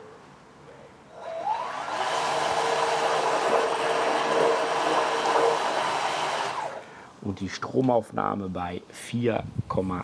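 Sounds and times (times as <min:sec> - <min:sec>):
electric motor whine: 0:01.2 - 0:06.8.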